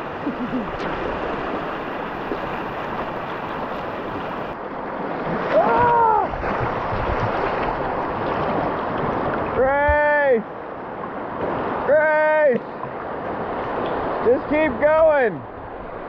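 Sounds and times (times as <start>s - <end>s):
wind buffeting microphone: 0.0s - 10.0s
river water rushing over rapids: 0.0s - 16.0s
person exclaiming: 5.5s - 6.3s.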